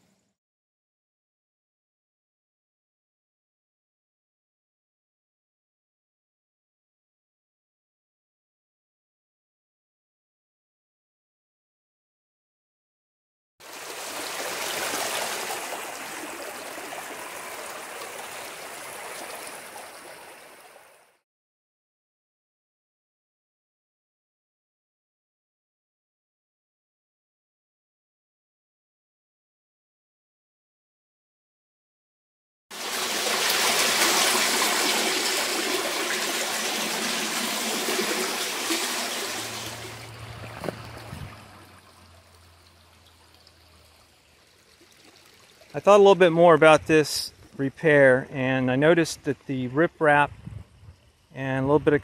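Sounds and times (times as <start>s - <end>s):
floodwater rushing and splashing: 13.6s - 21.1s, 32.7s - 47.4s
brief knock: 40.6s - 40.9s.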